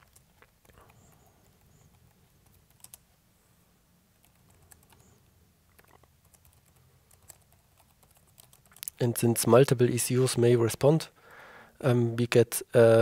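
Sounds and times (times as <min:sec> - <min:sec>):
typing on keyboard: 0:00.0 - 0:03.0, 0:05.7 - 0:09.0
low background hum: 0:00.0 - 0:13.0.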